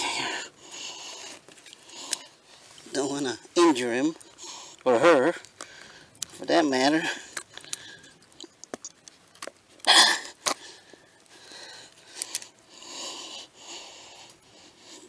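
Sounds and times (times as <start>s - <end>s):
man breathing: 0.0s - 2.8s, 5.6s - 6.2s, 7.0s - 8.3s, 9.8s - 15.0s.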